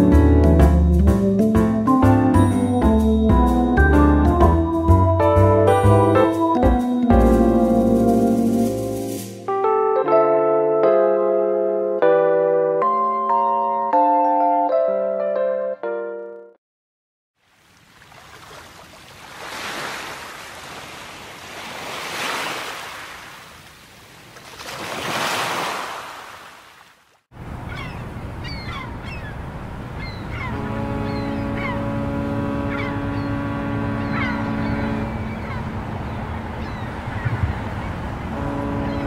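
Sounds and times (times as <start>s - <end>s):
wind: 17.4s - 39.0s
sea waves on rocky shore: 17.8s - 26.9s
short falling bird calls: 27.7s - 29.4s
low steady horn note: 30.5s - 36.5s, 38.2s - 39.0s.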